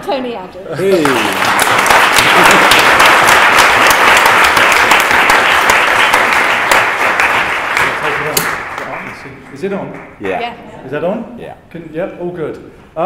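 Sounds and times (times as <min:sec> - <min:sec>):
audience applauding: 0:00.8 - 0:10.3.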